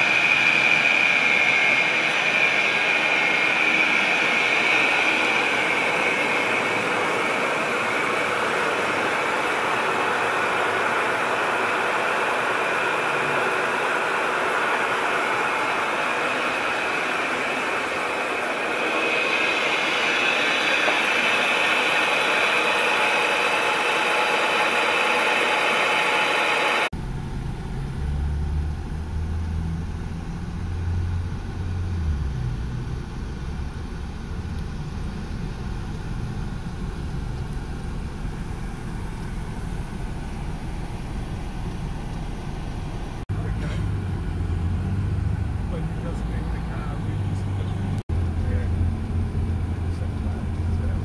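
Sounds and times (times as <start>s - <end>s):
garbage truck running: 0.0s - 51.0s
high whine: 0.0s - 51.0s
traffic rumble heard inside car: 27.0s - 40.1s, 41.4s - 51.0s.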